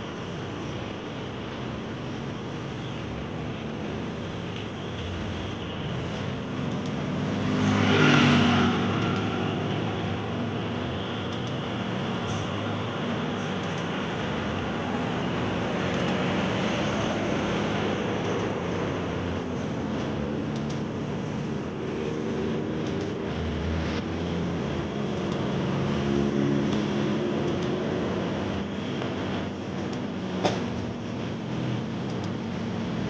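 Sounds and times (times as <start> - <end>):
vehicle engines humming: 0.0 - 33.0.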